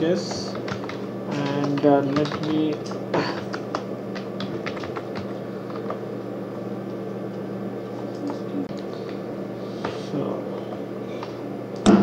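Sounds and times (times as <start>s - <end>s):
steady low hum: 0.0s - 12.0s
computer keyboard keystrokes: 0.3s - 6.0s.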